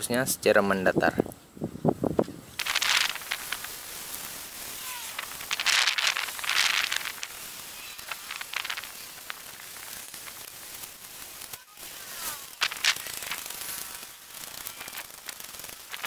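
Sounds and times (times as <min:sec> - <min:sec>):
sandpaper rubbing on plastic: 0:02.6 - 0:16.0
spray bottle spritzing: 0:02.6 - 0:16.0.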